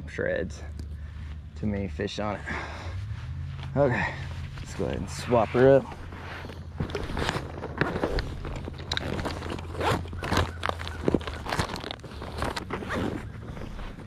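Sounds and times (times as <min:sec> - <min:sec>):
fishing tackle rustling and clicking: 0:04.5 - 0:14.0.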